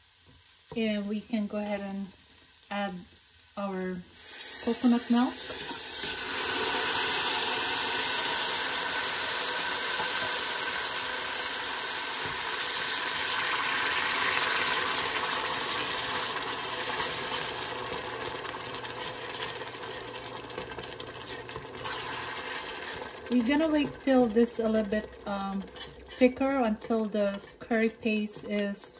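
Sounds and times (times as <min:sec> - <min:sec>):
liquid sizzling in a pot: 0:00.0 - 0:28.9
metal spoon scraping a pot: 0:21.8 - 0:28.9.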